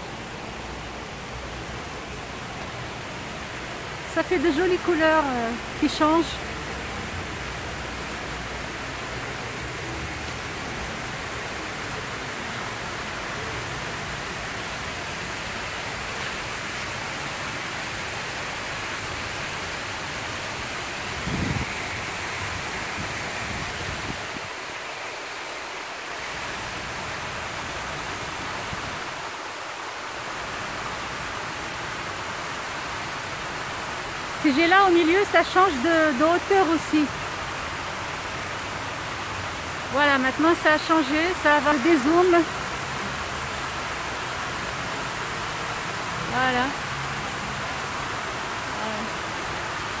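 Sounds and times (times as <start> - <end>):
fountain water splashing: 0.0 - 50.0.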